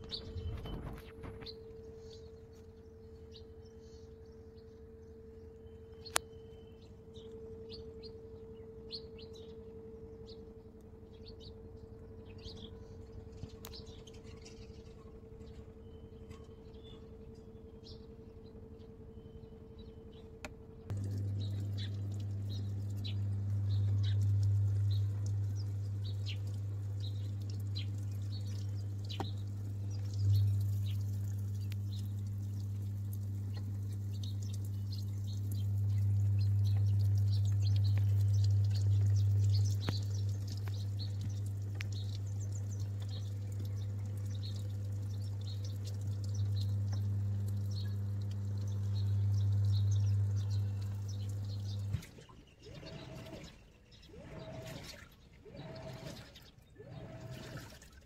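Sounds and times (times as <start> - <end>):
washing machine hum: 0.0 - 58.0
water pouring into drum: 20.9 - 58.0.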